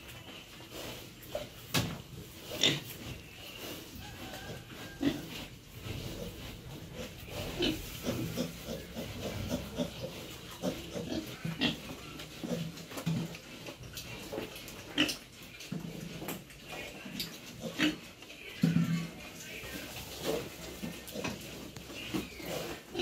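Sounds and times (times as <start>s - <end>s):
pigs grunting: 2.5s - 3.0s, 4.3s - 16.2s, 17.0s - 23.0s.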